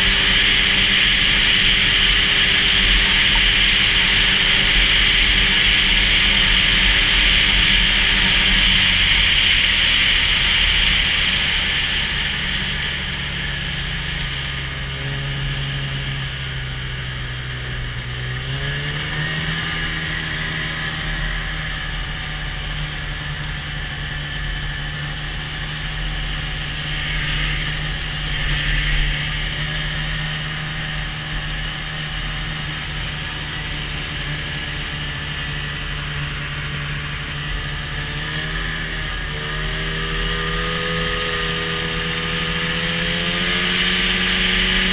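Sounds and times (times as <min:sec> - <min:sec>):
steady hiss: 0:00.0 - 0:15.0
snowmobile engine running: 0:00.0 - 0:44.9.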